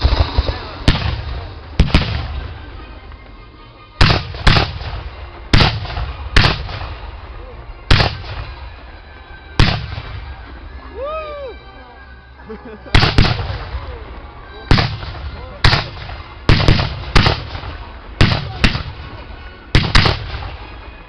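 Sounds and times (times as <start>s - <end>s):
cannons firing with rumbling echo: 0.0s - 2.6s, 4.0s - 7.1s, 7.9s - 8.7s, 9.6s - 10.3s, 13.0s - 13.7s, 14.7s - 20.7s.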